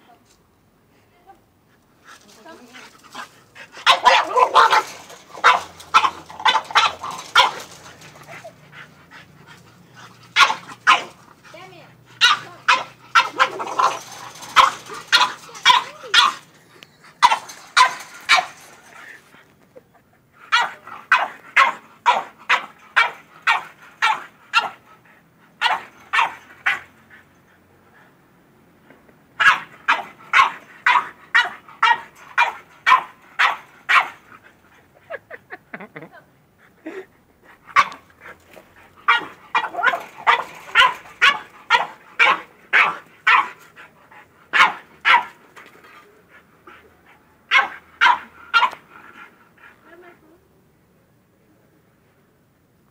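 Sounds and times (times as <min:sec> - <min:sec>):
dog barking: 0:03.8 - 0:07.8, 0:10.4 - 0:11.2, 0:12.2 - 0:16.4, 0:17.2 - 0:18.6, 0:20.5 - 0:24.8, 0:25.6 - 0:26.8, 0:29.4 - 0:34.2, 0:39.1 - 0:43.6, 0:44.5 - 0:45.3, 0:47.5 - 0:48.8.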